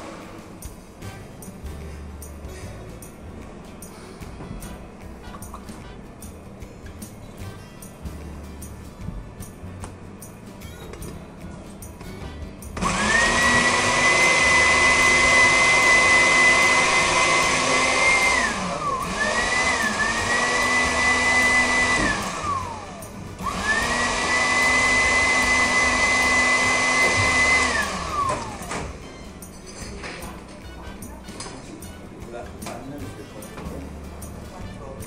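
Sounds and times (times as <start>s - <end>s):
blender motor whining: 12.8s - 29.0s.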